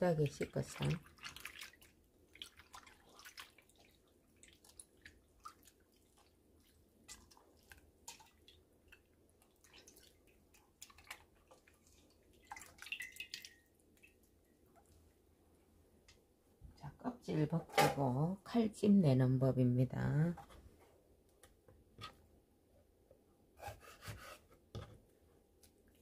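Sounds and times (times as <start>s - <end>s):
water dripping and splashing: 0.0s - 15.2s.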